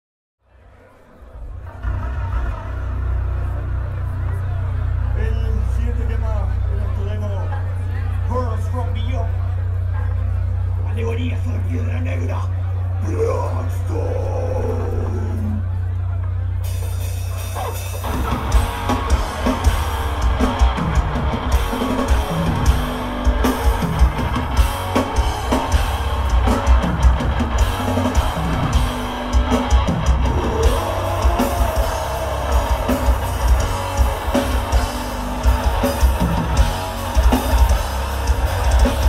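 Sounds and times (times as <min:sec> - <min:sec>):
bass guitar: 0:01.4 - 0:39.0
distorted electric guitar: 0:12.5 - 0:39.0
fast drum kit: 0:16.6 - 0:39.0.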